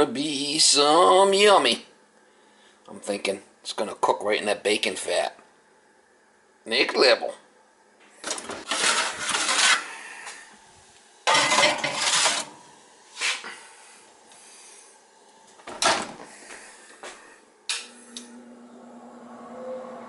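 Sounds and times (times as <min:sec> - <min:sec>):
oven door opening and shutting: 0:08.2 - 0:09.5, 0:15.7 - 0:16.2
sheet pan clattering on oven rack: 0:11.3 - 0:12.6.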